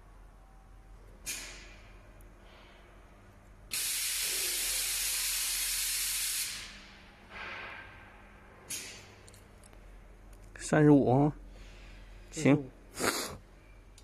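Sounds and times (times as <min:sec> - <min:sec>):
compressed air hissing: 0:03.7 - 0:07.7.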